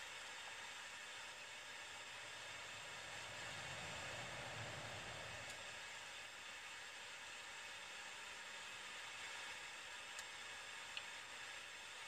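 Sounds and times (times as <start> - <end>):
faint car cabin hiss: 2.0 - 5.8.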